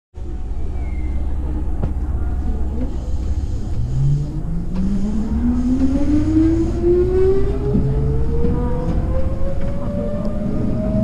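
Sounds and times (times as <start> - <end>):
train running rumble: 0.2 - 11.0
electric train motor whine: 2.8 - 11.0.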